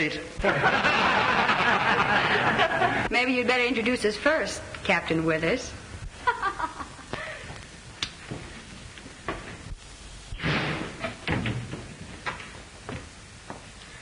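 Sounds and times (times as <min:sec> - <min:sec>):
film soundtrack hiss: 0:00.0 - 0:14.0
loud thud: 0:10.3 - 0:12.0.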